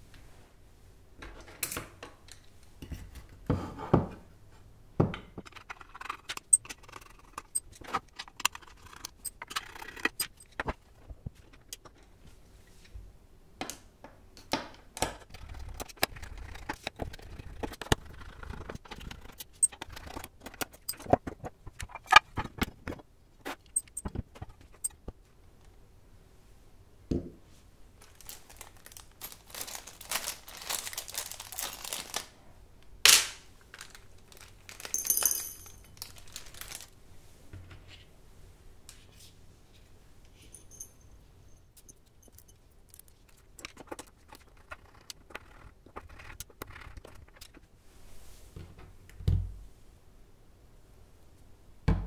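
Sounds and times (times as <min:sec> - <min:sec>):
screwdriver metallic clicks: 0:23.8 - 0:24.1.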